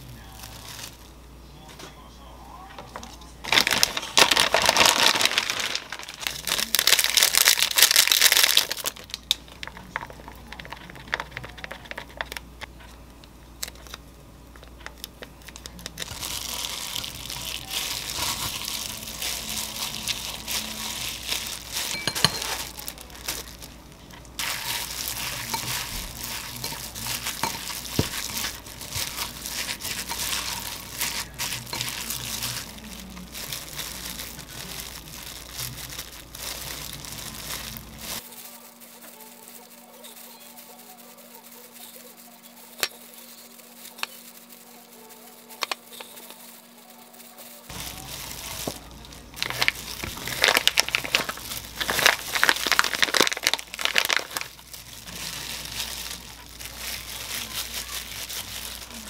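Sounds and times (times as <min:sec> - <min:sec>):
plastic gloves rustling: 0:00.0 - 0:01.3, 0:02.9 - 0:59.0
plastic food package crinkling: 0:00.3 - 0:01.1, 0:03.0 - 0:12.7, 0:13.6 - 0:59.0.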